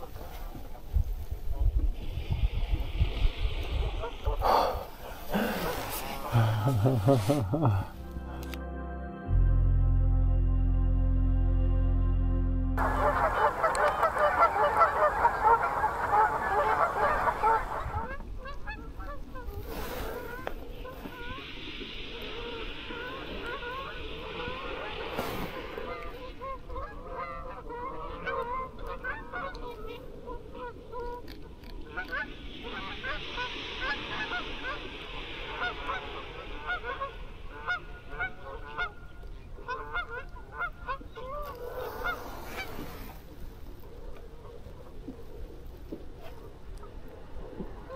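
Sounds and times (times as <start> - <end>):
geese honking: 12.8 - 19.5, 25.7 - 31.2, 31.9 - 42.8
soft hiss: 19.2 - 27.6, 31.4 - 40.3.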